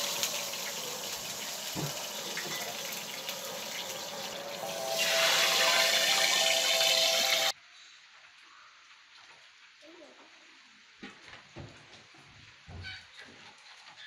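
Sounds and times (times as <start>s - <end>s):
hissing frying pan: 0.0s - 7.6s.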